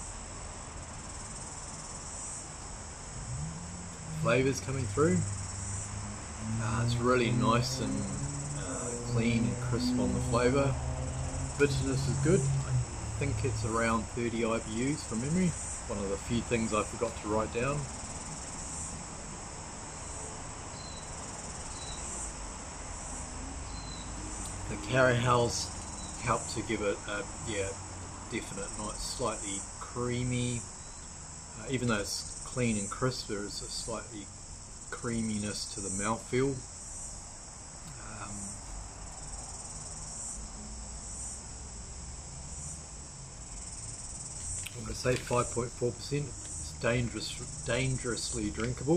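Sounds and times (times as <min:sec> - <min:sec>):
insects chirping: 0:00.0 - 0:48.9
faint low rumble: 0:02.6 - 0:19.2.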